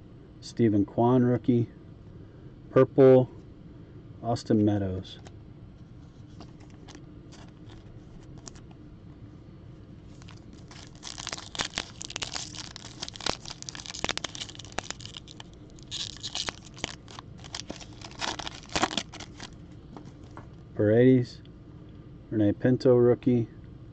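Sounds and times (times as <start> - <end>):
wrapper tearing and crinkling: 6.6 - 8.6, 10.1 - 19.6.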